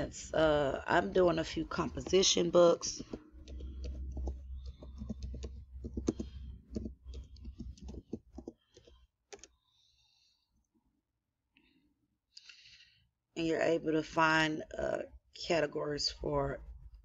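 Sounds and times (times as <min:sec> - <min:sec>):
typing on computer keyboard: 0:03.0 - 0:09.5.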